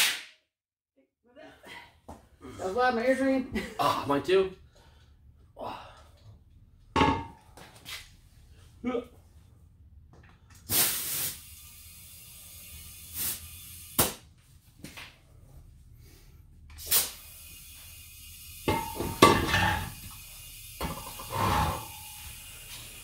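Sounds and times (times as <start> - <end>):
compressed air hissing: 10.6 - 14.0, 16.8 - 23.0.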